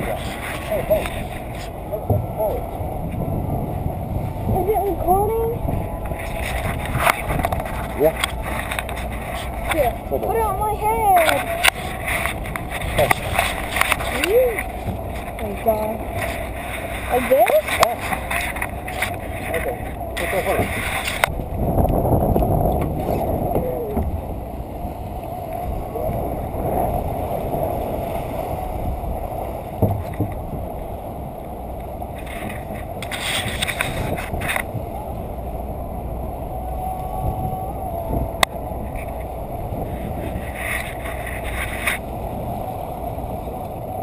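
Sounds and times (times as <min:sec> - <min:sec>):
rush of wind and water: 0:00.0 - 0:44.0
sharp knocks on boat: 0:02.0 - 0:03.4, 0:29.8 - 0:30.7.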